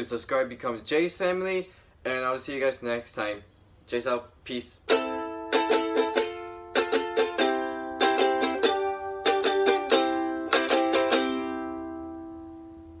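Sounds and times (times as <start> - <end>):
ukulele strummed: 4.8 - 13.0.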